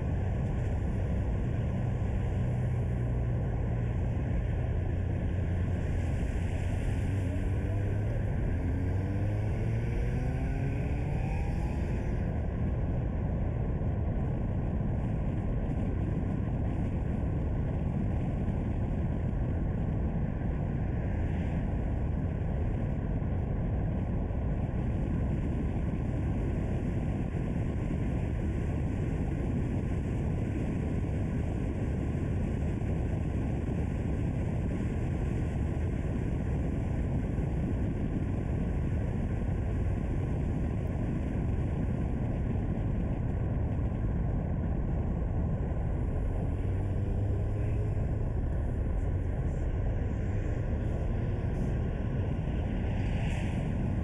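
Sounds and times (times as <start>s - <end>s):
car tyre and wind noise: 0.0s - 54.0s.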